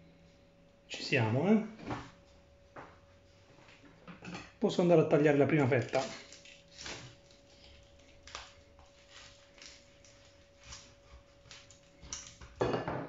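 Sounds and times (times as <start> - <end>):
knife crunching through crackling: 5.6 - 12.6.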